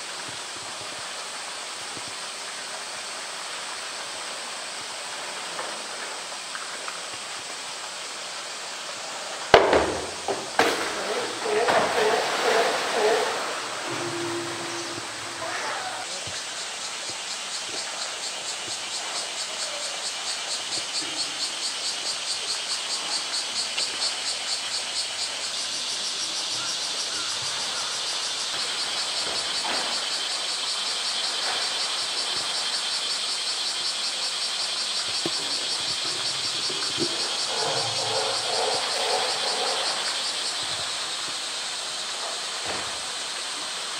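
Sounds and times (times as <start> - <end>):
cicadas buzzing: 0.0 - 43.9
water pouring into a pool: 10.8 - 14.0.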